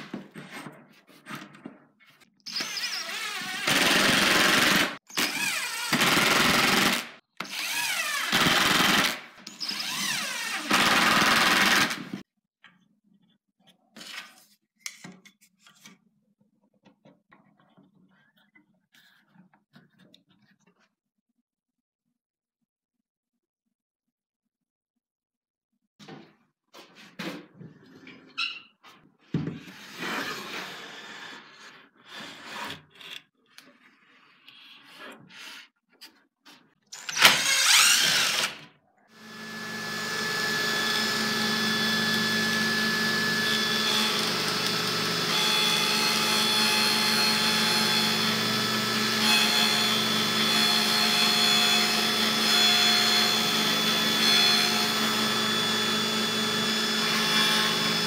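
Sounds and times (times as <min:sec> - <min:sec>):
table saw running: 0:39.2 - 0:58.0.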